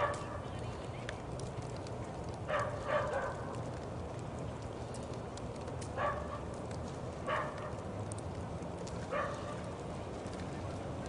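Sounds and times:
dog barking: 0.0 - 0.3, 2.5 - 3.5, 6.0 - 6.4, 7.3 - 7.7, 9.1 - 9.6
low background rumble: 0.0 - 11.0.

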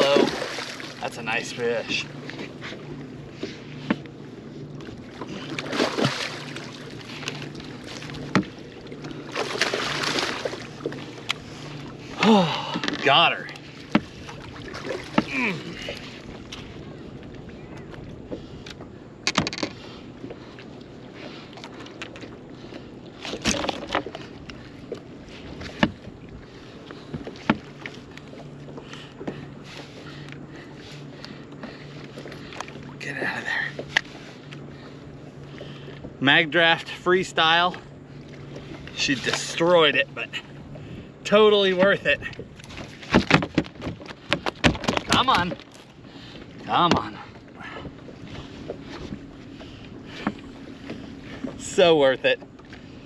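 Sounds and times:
fish splashing in water: 0.0 - 1.2, 5.1 - 12.3
knocks on a boat: 8.2 - 8.6, 13.9 - 14.2, 43.0 - 45.6, 46.8 - 47.2.

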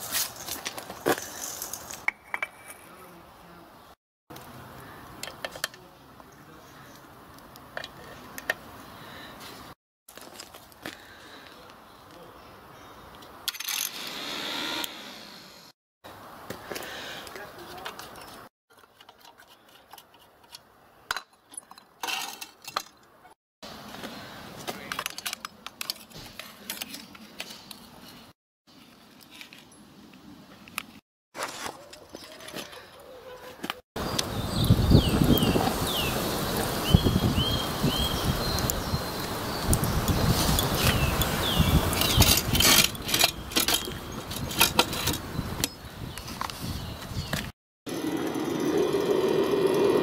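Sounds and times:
metal tool clinking and scraping: 13.5 - 14.1, 17.8 - 23.0, 40.1 - 45.8
steam hissing: 14.0 - 15.7.

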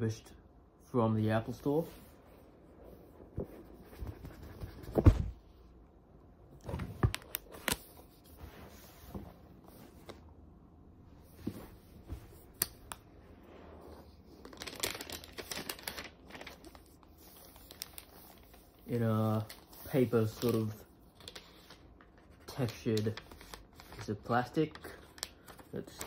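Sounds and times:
cardboard box thump: 4.9 - 5.4
paper wrap crinkling: 14.3 - 26.0.

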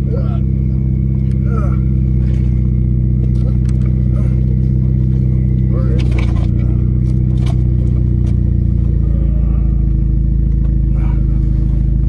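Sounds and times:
car engine and exhaust: 0.0 - 12.0.

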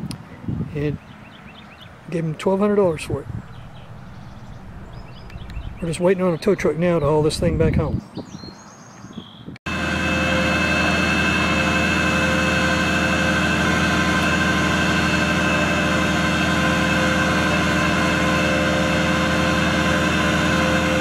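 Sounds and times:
tow truck engine droning: 2.4 - 7.6, 9.7 - 21.0
winch whine: 2.4 - 7.8, 9.7 - 21.0.

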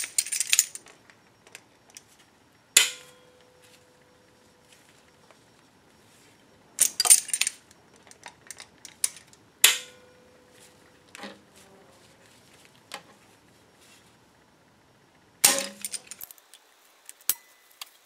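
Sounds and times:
loud snap with metallic ring: 2.8 - 3.5, 9.6 - 10.3.

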